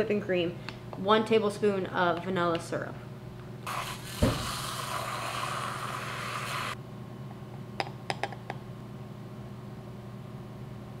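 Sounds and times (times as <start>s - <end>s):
milk frother whirring: 3.7s - 6.8s.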